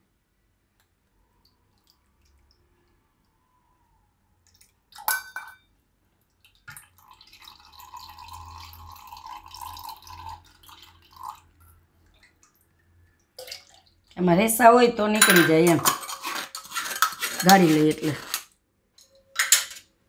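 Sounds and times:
metal clinking on glass: 5.1 - 5.6, 15.2 - 16.3, 19.0 - 19.9
liquid trickling into glass: 6.5 - 12.2.

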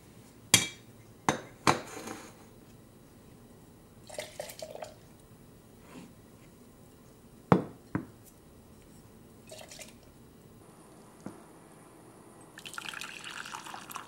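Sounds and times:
dishware knocking on countertop: 7.5 - 8.1.

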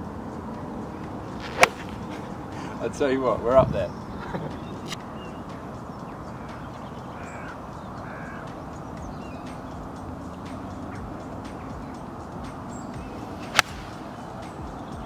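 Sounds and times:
crows cawing: 6.2 - 8.6.

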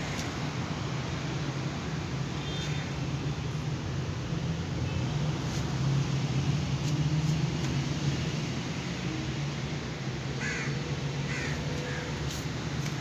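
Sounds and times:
crow cawing: 10.4 - 12.1.

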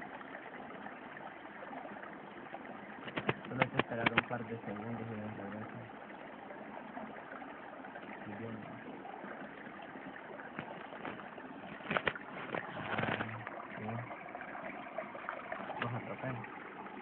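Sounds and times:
stream water running over rocks: 0.0 - 17.0
splashing in shallow water: 3.0 - 4.4, 9.4 - 16.4.

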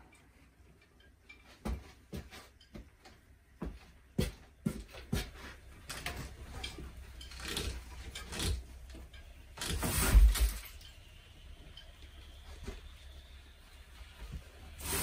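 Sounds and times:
panels scraping and rattling: 4.9 - 11.1
cupboards being wrenched apart: 5.9 - 10.8.

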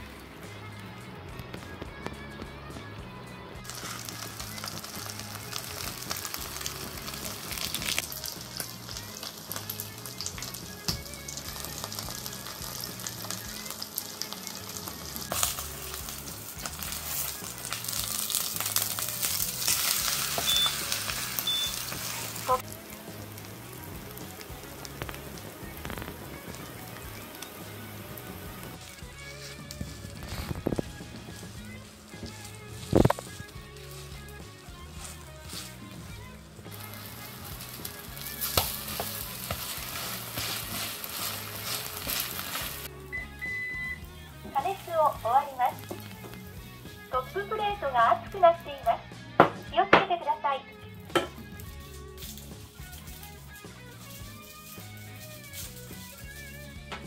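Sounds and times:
pancake sizzling in oil: 3.7 - 34.3, 36.7 - 42.9, 51.1 - 56.8.

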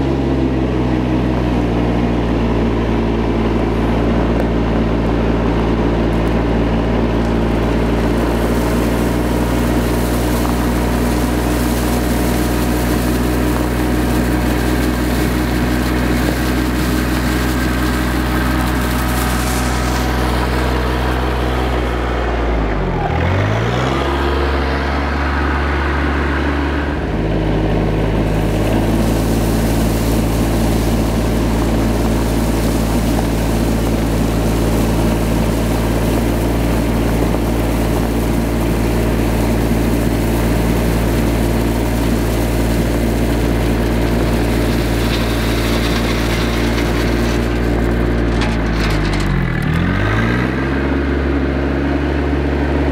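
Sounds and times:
tractor diesel engine running: 0.0 - 52.9.

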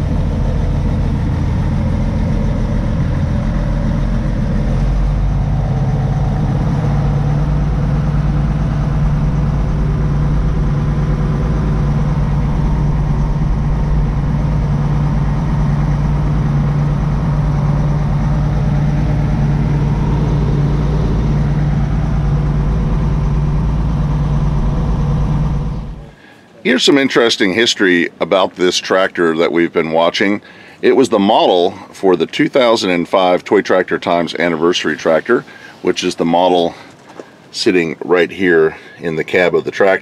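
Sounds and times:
tractor diesel engine running: 0.0 - 27.3.

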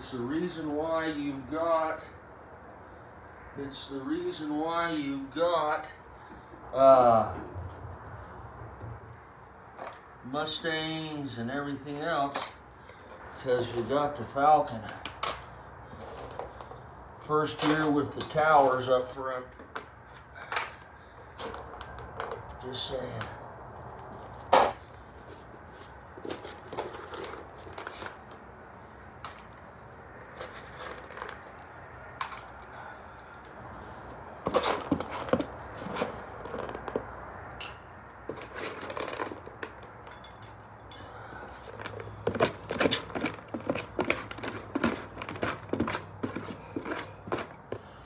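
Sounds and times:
bag crinkling and rustling: 30.2 - 32.6, 33.8 - 37.2, 38.2 - 40.0, 41.4 - 47.6.

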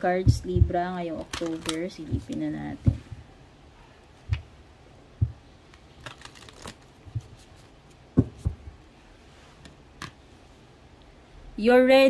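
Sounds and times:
cards being shuffled by hand: 0.3 - 3.1, 5.2 - 8.7.

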